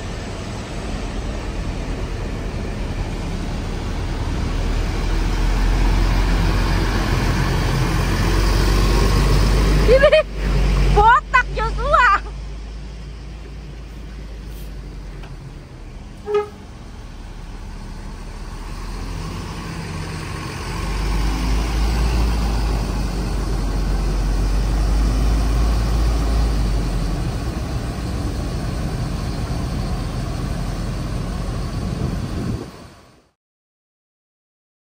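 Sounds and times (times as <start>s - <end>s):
bus diesel engine rumbling: 0.0s - 33.4s
horn toot: 16.2s - 16.7s.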